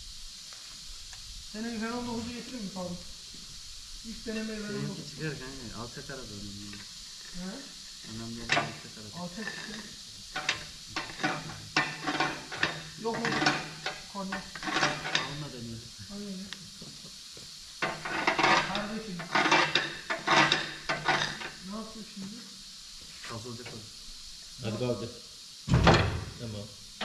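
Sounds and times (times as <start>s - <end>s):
metal tools clattering and scraping: 8.3s - 15.5s, 17.8s - 21.6s.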